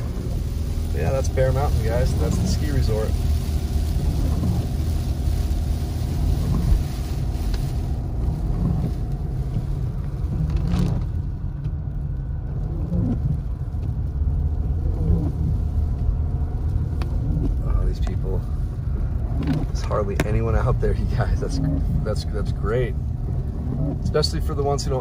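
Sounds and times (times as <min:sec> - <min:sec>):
engine and road rumble: 0:00.0 - 0:25.0
tyres hissing on wet road: 0:00.0 - 0:25.0.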